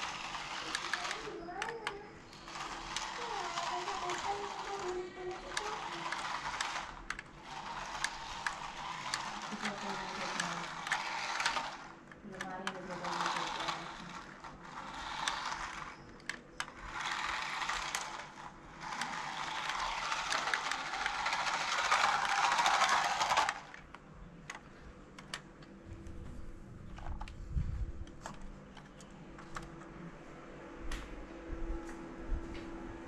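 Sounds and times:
toy car motor whirring: 0.0s - 23.9s.

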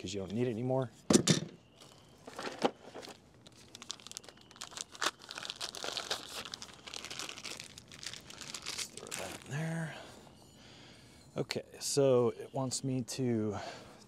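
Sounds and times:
plastic packaging crinkling: 1.8s - 9.7s.

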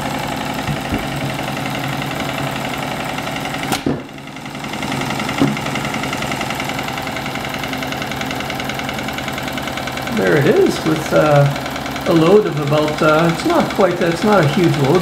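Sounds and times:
steam engine chuffing clatter: 0.0s - 15.0s
short knocks: 0.6s - 1.6s.

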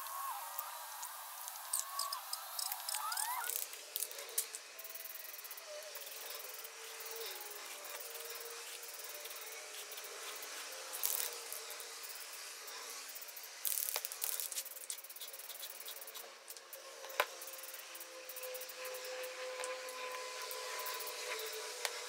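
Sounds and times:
aerosol spray can hissing: 0.0s - 16.6s.

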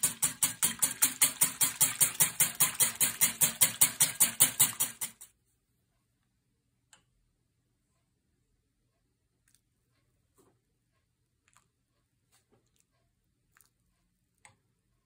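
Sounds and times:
whisk clicking against bowl: 0.0s - 5.3s.

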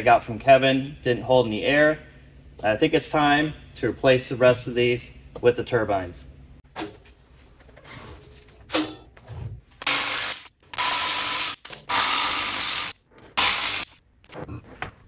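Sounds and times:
power wrench bursts: 9.8s - 14.0s.

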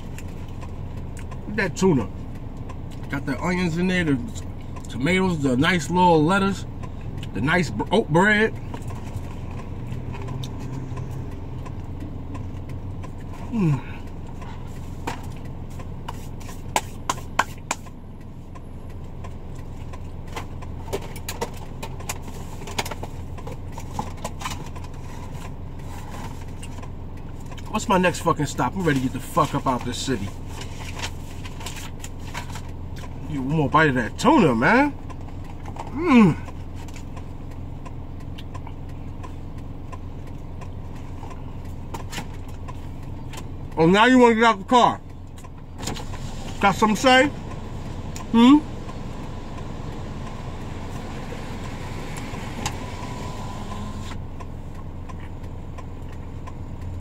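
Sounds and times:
car engine idling: 0.0s - 57.0s.

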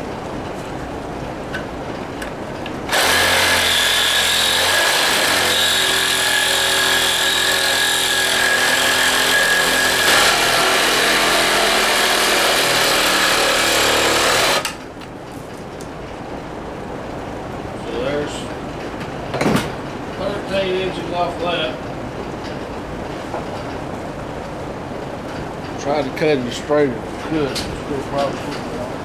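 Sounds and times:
reciprocating saw cutting metal: 2.9s - 14.8s.

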